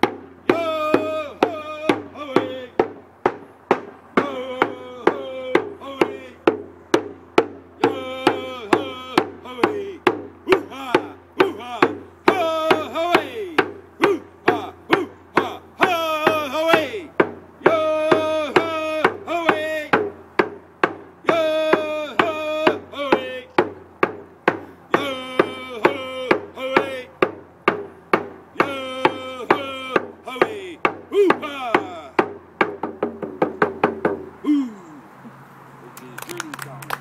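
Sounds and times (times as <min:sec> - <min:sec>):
hand drum beating: 0:00.0 - 0:34.3
man singing: 0:00.4 - 0:03.0, 0:03.8 - 0:06.7, 0:07.8 - 0:20.2, 0:21.2 - 0:23.8, 0:24.9 - 0:27.4, 0:28.5 - 0:32.4.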